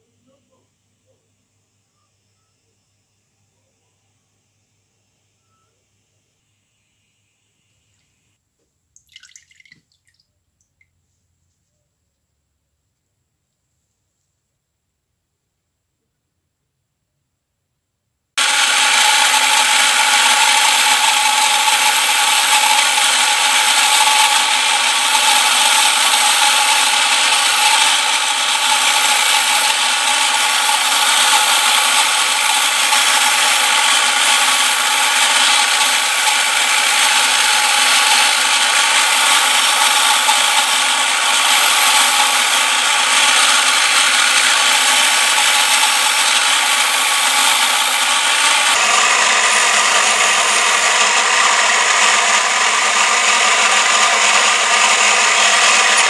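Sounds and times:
bench grinder grinding steel file: 18.4 - 56.0.

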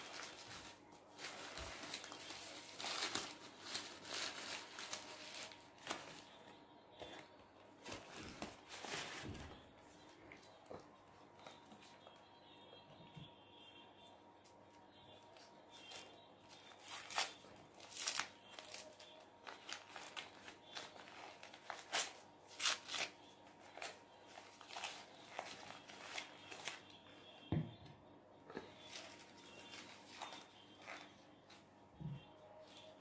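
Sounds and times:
paper wrapper crinkling and tearing: 0.0 - 7.2, 7.8 - 9.6, 15.4 - 27.1, 28.8 - 31.6.

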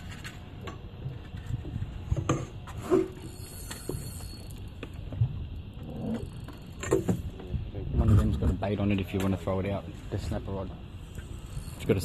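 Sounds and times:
fishing reel clicking: 3.3 - 4.9.

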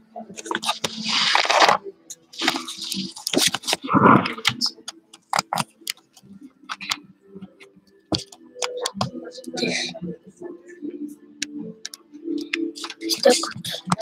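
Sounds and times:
sharp clicks and taps: 11.4 - 14.0.

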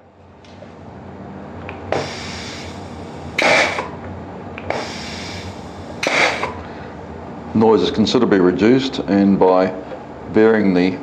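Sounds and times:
exhaust air puffs: 1.7 - 7.2
air hissing: 1.8 - 4.0, 4.6 - 6.8.

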